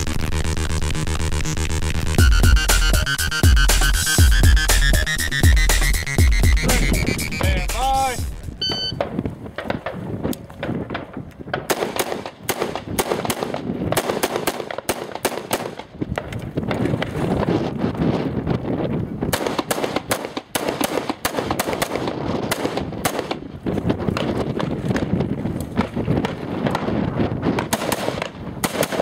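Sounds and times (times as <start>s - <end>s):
rifle shots: 10.6s - 16.3s, 19.3s - 23.5s, 25.8s - 29.0s.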